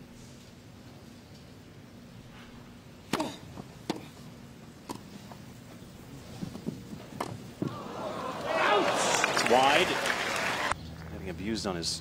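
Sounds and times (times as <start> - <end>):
low background murmur: 5.1 - 12.0.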